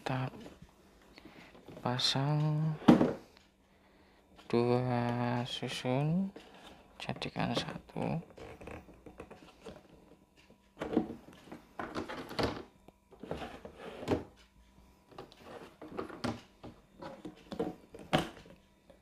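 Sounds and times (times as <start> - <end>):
plastic drawer sliding: 11.8 - 14.3.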